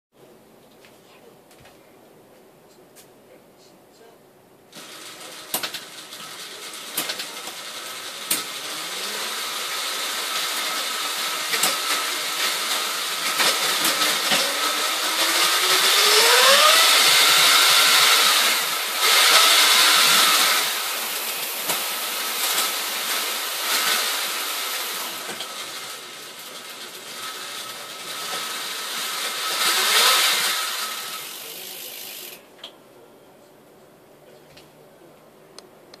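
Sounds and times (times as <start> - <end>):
mechanical rattling and clicks: 4.8 - 8.7
electric motor whine: 4.8 - 32.4.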